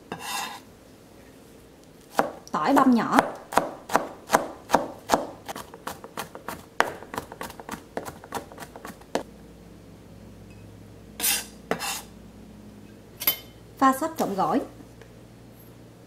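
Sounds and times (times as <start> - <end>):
knife chopping on plastic board: 2.1 - 9.2.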